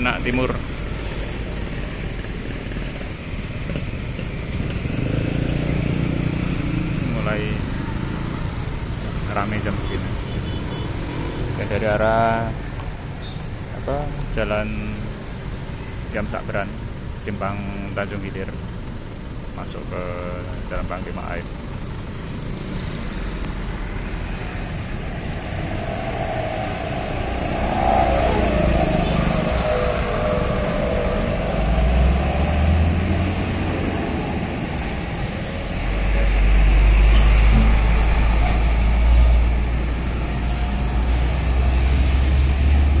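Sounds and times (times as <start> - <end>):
trucks passing: 0.0 - 43.0
motor scooters passing: 0.8 - 9.1, 22.1 - 35.2
deep loud engine rumble: 13.5 - 43.0.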